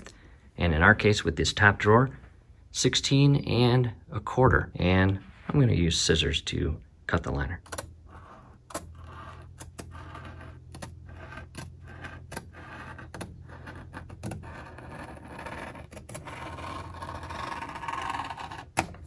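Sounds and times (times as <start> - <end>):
scissors cutting rubbery liner: 11.3 - 19.0.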